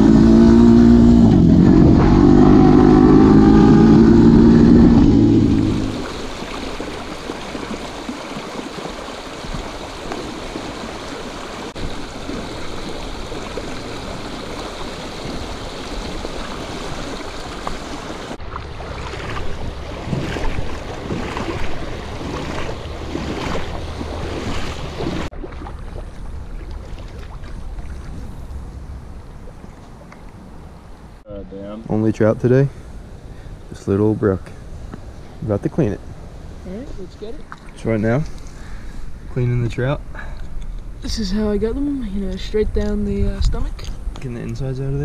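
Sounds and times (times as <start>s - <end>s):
creek water rushing over rocks: 5.4s - 28.3s.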